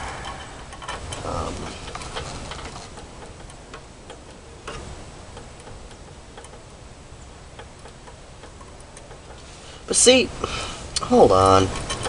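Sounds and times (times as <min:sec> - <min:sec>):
faint low rumble: 0:00.0 - 0:03.2
light clicks and taps on linkage: 0:00.7 - 0:12.0.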